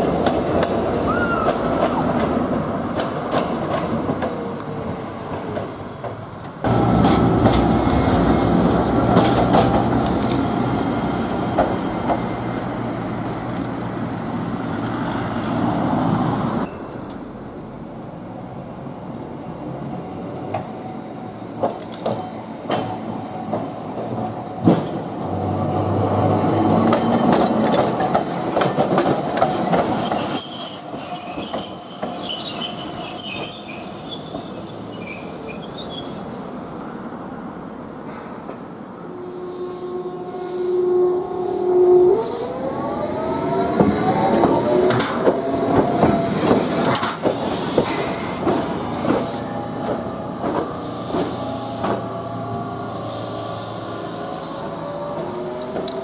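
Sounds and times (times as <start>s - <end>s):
tram wheels squealing: 1.0s - 2.4s, 4.3s - 6.2s, 11.3s - 17.0s, 29.0s - 36.8s, 39.1s - 56.0s
wheels clattering over rail joints: 1.4s - 10.5s.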